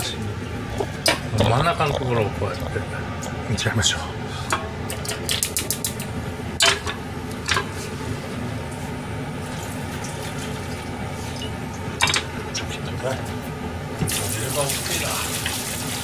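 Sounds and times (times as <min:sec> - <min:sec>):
saucepan and dishes clinking: 0:11.4 - 0:12.3.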